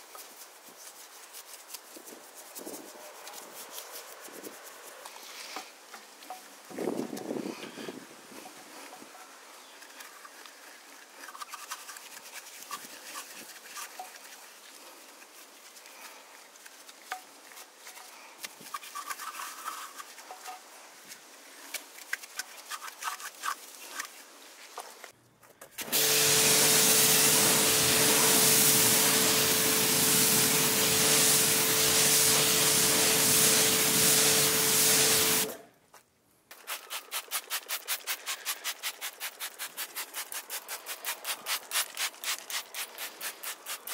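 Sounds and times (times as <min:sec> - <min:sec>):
brush rubbing wet wheel: 0:00.1 - 0:05.6, 0:09.8 - 0:20.5, 0:26.2 - 0:35.6, 0:36.5 - 0:43.9
loud rushing hiss: 0:25.8 - 0:35.6
rhythmic brush scrubbing tyre: 0:25.9 - 0:35.6.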